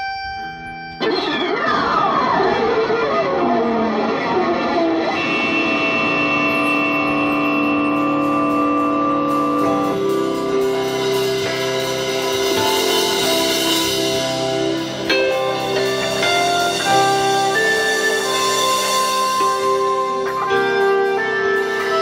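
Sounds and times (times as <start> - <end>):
electric guitar melody: 0.0 - 22.0
cymbal crash: 5.2 - 22.0
drum kit: 5.2 - 22.0.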